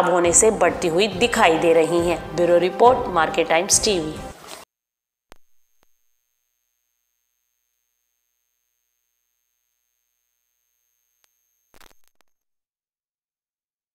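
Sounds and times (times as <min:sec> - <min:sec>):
crackle of clicks: 0:11.2 - 0:12.4.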